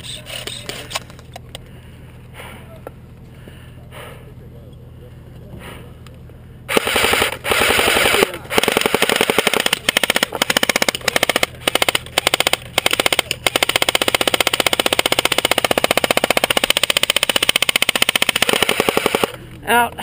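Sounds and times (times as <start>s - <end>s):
airsoft rifle automatic fire: 6.7s - 19.4s.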